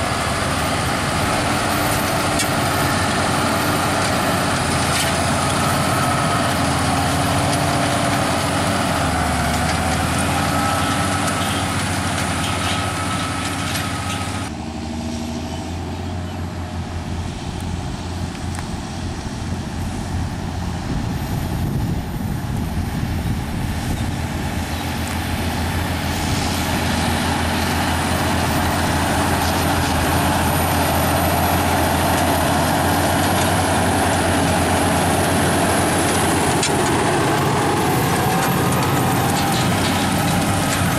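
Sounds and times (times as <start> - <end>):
tractor engines under load: 0.0 - 40.9.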